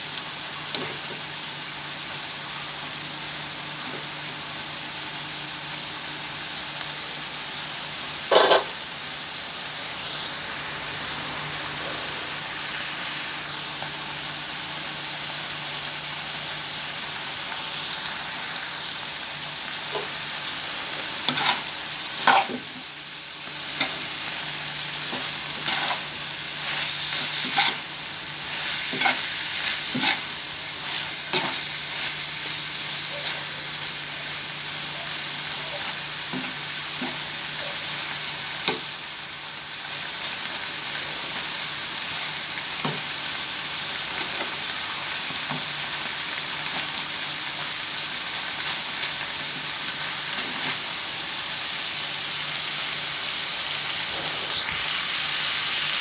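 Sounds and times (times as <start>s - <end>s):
meat sizzling in a frying pan: 0.0s - 56.0s
metal spatula scraping a pan: 8.3s - 8.8s, 21.2s - 22.7s, 25.1s - 32.2s.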